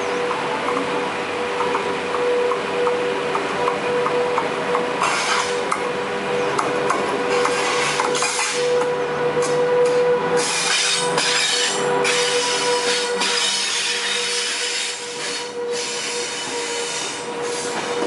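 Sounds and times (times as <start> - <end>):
train passing at speed: 0.0 - 18.0.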